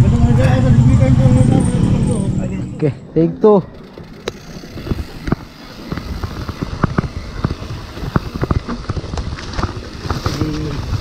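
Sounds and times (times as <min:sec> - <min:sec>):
low rumble: 0:00.0 - 0:05.5
bike rattling on rough trail: 0:00.0 - 0:11.0.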